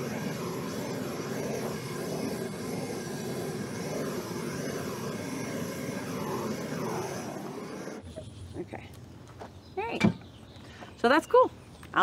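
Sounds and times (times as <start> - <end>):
gas torch rushing: 0.0 - 8.4.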